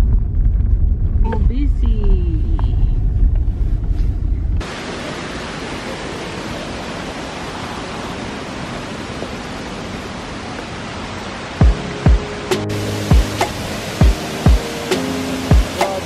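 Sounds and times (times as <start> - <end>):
car interior rumble: 0.0 - 4.9
waterfall roaring: 4.6 - 16.0.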